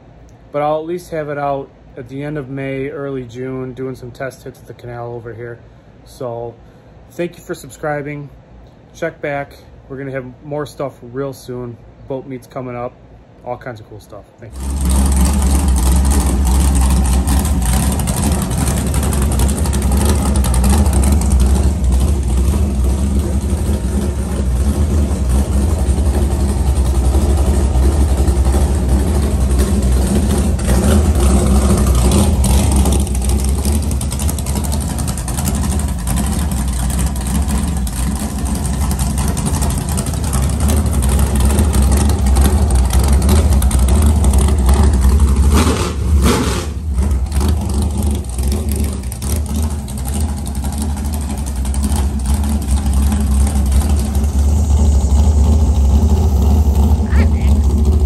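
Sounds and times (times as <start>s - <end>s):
boat engine idling loudly: 14.5s - 58.0s.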